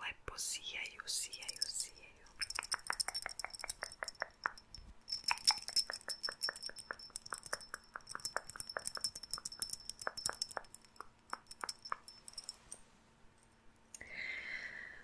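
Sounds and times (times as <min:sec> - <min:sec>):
metal earrings jingling: 0:01.2 - 0:12.8.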